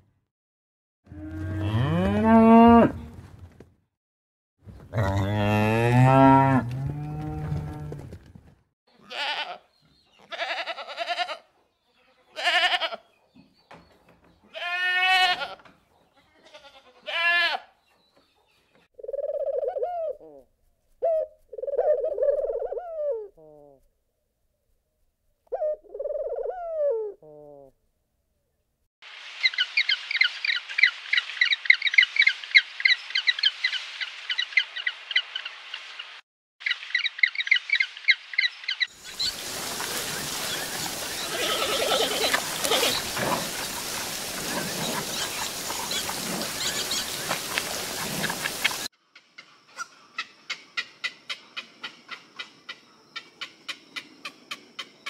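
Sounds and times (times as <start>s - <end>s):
animal bleating: 8.9s - 13.0s, 14.5s - 15.6s, 16.2s - 17.7s, 41.3s - 43.0s
birds chirping: 36.6s - 48.9s.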